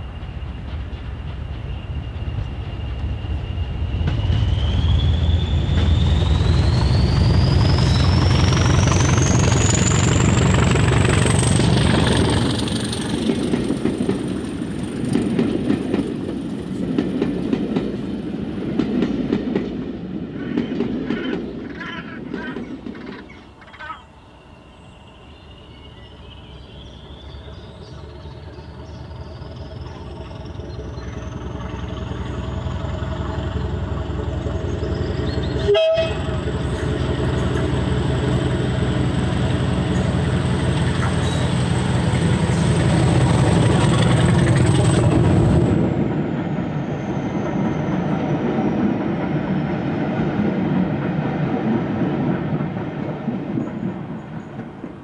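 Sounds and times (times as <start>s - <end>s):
train wheels clattering over rail joints: 0.0s - 4.8s, 5.6s - 23.8s, 27.6s - 46.2s
diesel locomotive engine rumble: 0.0s - 55.0s
turbocharger whistle rising: 3.2s - 11.7s.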